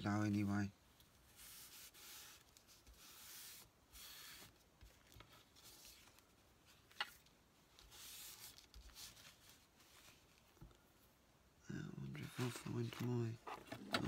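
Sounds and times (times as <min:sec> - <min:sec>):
paper rustling: 0:04.4 - 0:10.7.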